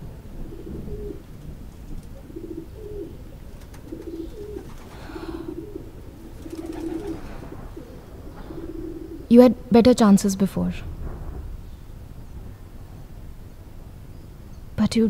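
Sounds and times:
pigeons cooing: 0.2s - 9.3s.

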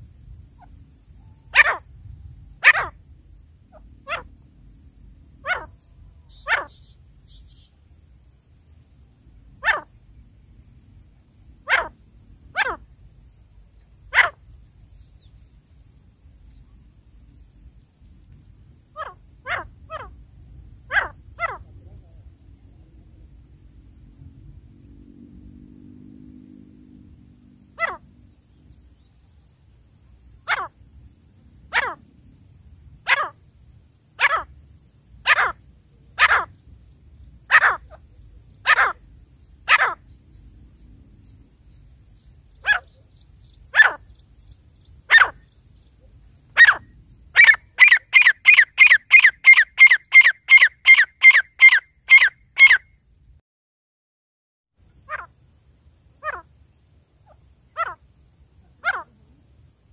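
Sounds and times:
francolin calling: 0.1s - 3.0s, 3.6s - 4.5s, 5.4s - 8.1s, 9.6s - 10.0s, 11.6s - 17.6s, 18.9s - 22.0s, 27.0s - 52.9s, 54.8s - 55.4s, 56.2s - 59.4s.

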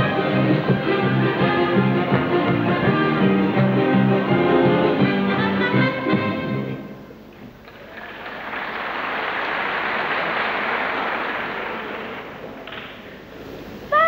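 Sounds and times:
audience applauding: 7.6s - 13.1s.

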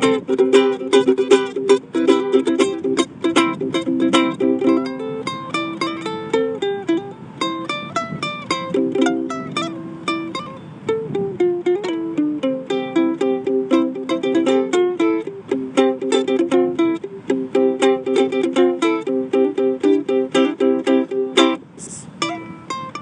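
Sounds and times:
acoustic plucked string instrument: 0.0s - 23.0s.

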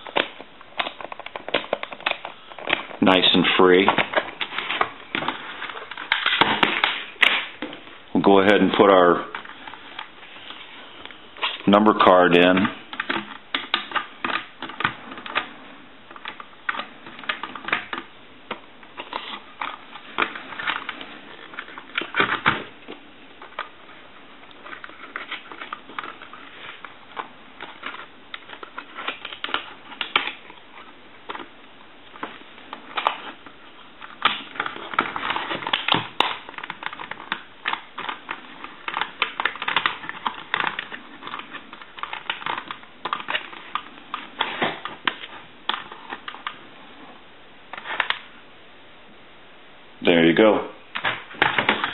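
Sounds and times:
plastic telephone parts clicking: 34.0s - 46.6s.

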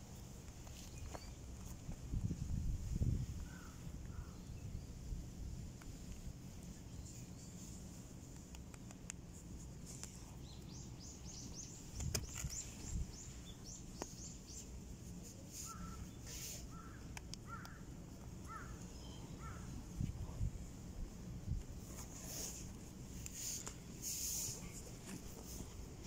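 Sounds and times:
small birds chirping: 0.6s - 1.7s, 6.1s - 20.4s.

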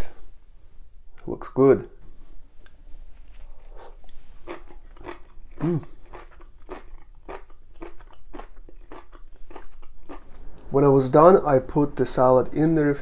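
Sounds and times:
person chewing crunchy food: 3.4s - 10.5s
person humming: 5.6s - 6.0s.

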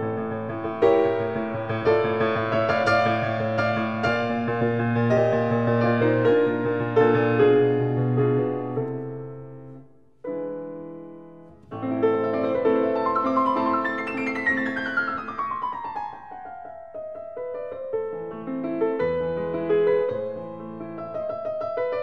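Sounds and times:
piano music: 0.0s - 22.0s.

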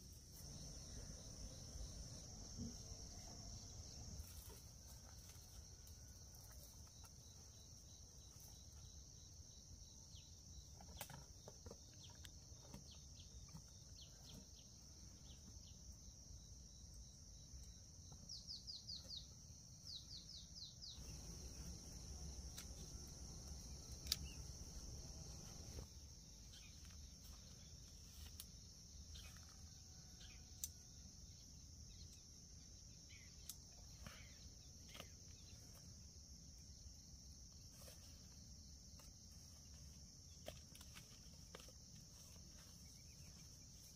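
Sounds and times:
high insect drone: 0.0s - 11.7s, 14.5s - 43.9s
bird chirping: 17.7s - 25.8s, 26.4s - 27.7s.

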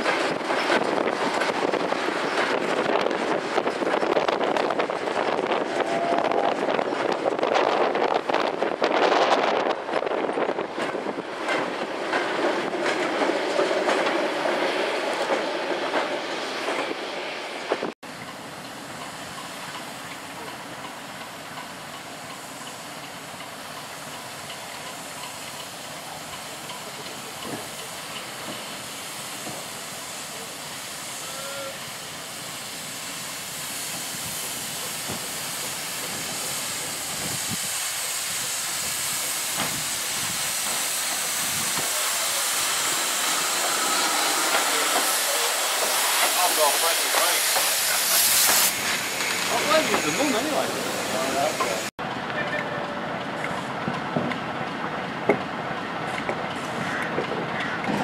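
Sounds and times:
locomotive steam hissing: 0.0s - 57.5s.

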